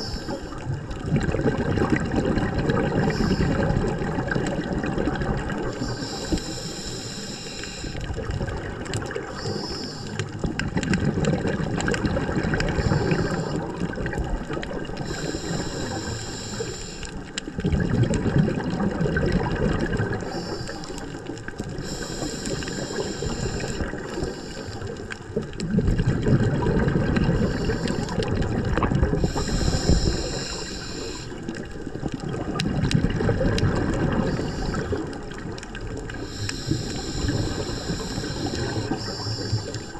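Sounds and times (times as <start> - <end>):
air hissing through regulator: 0.0 - 0.6, 3.0 - 3.6, 5.7 - 8.1, 9.3 - 10.2, 12.8 - 13.7, 15.0 - 17.2, 20.2 - 21.2, 21.8 - 24.9, 27.3 - 28.3, 29.2 - 31.4, 34.1 - 35.1, 36.1 - 39.9
bubbling exhaust: 0.0 - 17.0, 17.6 - 20.9, 21.8 - 39.9.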